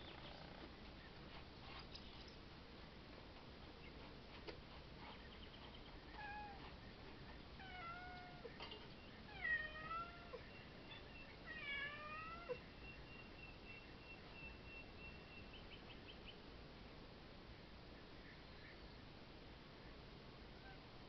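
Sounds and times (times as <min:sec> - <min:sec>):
cat meowing: 0:07.6 - 0:08.5, 0:09.3 - 0:10.4, 0:11.5 - 0:12.6.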